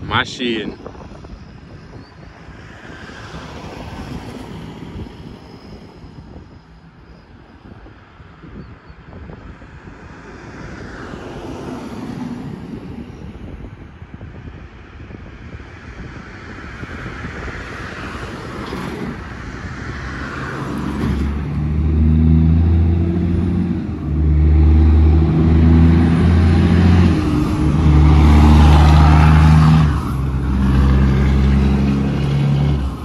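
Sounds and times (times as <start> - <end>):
diesel truck engine: 16.4 - 33.0.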